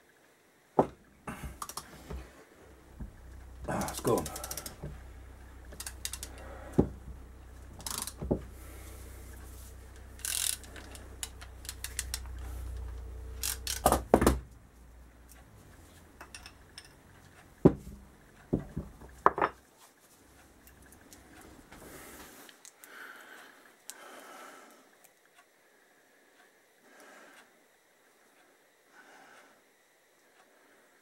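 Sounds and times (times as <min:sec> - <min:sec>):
hand tools clicking on metal: 0:03.7 - 0:04.9, 0:05.7 - 0:06.5, 0:10.2 - 0:12.4
socket ratchet clicking: 0:05.7 - 0:06.4, 0:07.8 - 0:08.2, 0:10.2 - 0:12.5, 0:13.4 - 0:14.0
tools set down on workbench: 0:19.2 - 0:19.6.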